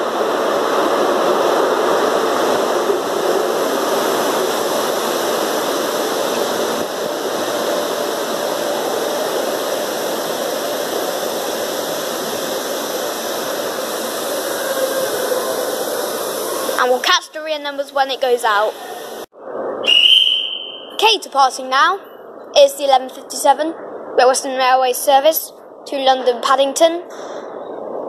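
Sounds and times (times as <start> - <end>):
train wheels rushing on rail: 0.0 - 19.3.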